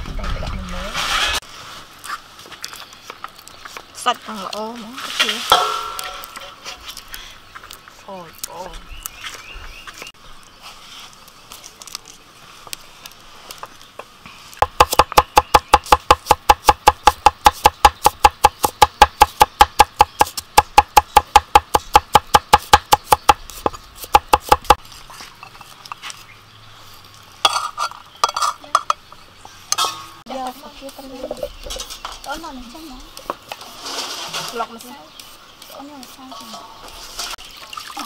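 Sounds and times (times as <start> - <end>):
cleaver chopping on wooden block: 14.6 - 24.8.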